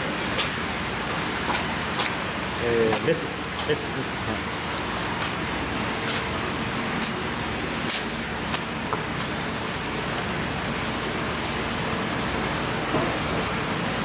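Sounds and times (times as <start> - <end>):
rushing hiss of running water: 0.0 - 11.4
sharp water splashes: 0.0 - 11.4.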